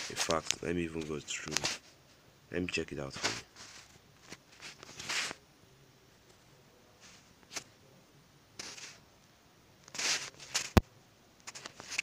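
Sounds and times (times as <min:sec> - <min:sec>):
brief rustling: 0:03.1 - 0:05.4, 0:09.9 - 0:10.8.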